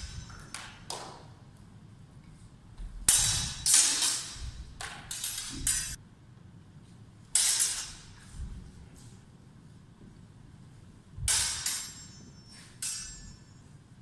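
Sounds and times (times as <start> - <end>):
swords clashing and scraping: 0.0 - 1.0, 3.0 - 6.0, 7.3 - 8.4, 11.2 - 14.0.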